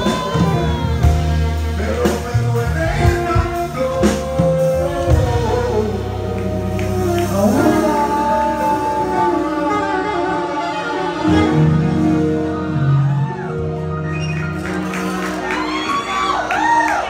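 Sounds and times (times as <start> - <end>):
keyboard sustained chords: 0.0 - 16.4
live band playing a slow ballad: 0.0 - 17.0.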